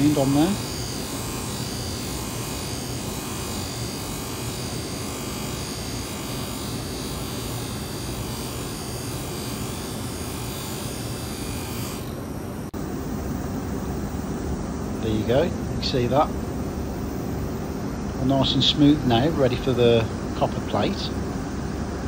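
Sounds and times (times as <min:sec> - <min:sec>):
buffing machine motor whirr: 0:00.0 - 0:22.0.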